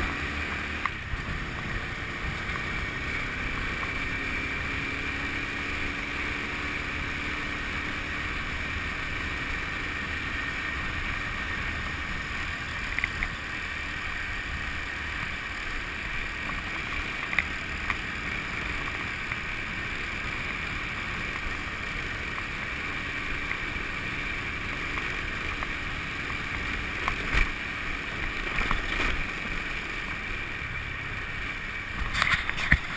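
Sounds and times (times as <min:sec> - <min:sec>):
scooter engine drone: 0:00.0 - 0:32.9
sharp knocks from road bumps: 0:32.0 - 0:32.9.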